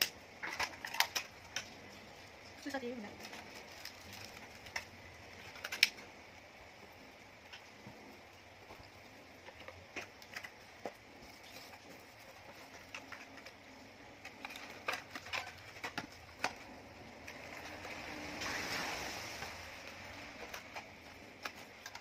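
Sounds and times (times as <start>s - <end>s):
packaging rustle: 3.1s - 6.2s, 8.7s - 22.0s
plastic and cardboard clicks: 3.2s - 6.1s, 9.5s - 17.9s, 20.3s - 22.0s.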